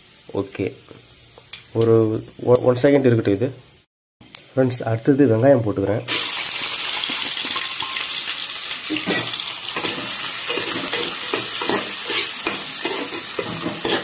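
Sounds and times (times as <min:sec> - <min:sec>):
onions sizzling in hot oil: 0:00.0 - 0:04.4, 0:05.2 - 0:14.0
metal spatula scraping pot: 0:08.9 - 0:14.0.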